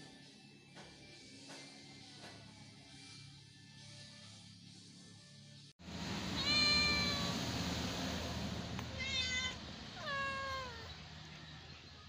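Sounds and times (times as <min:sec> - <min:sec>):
cats meowing: 0:06.4 - 0:07.4, 0:08.9 - 0:11.0.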